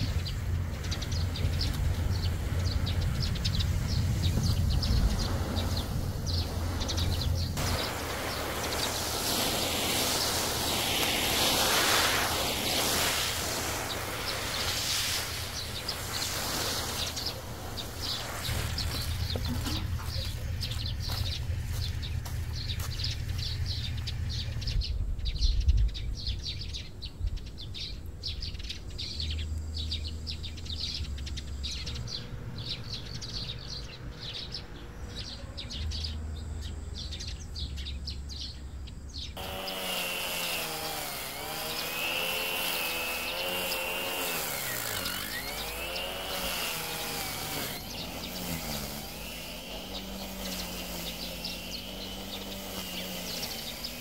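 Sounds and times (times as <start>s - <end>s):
small engine running: 0.0s - 25.0s, 39.4s - 54.0s
wind rumbling on microphone: 0.0s - 28.8s
birds chirping: 0.0s - 54.0s.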